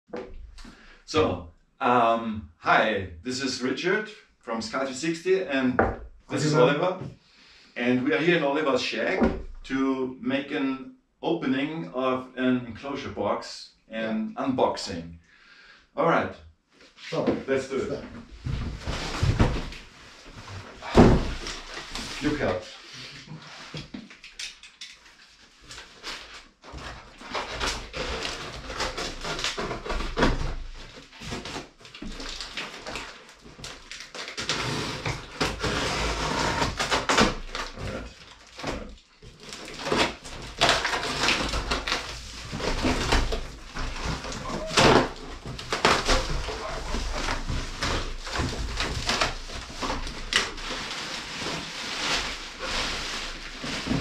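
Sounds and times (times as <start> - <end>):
cardboard flaps scraping and rustling: 18.2 - 24.0, 25.6 - 54.0
plastic wrapping crinkling: 27.1 - 35.4, 36.7 - 54.0.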